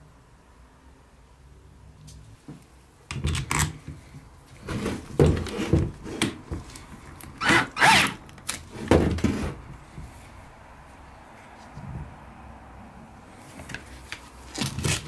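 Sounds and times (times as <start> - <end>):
clicks and knocks of plastic and wood: 2.5 - 7.4.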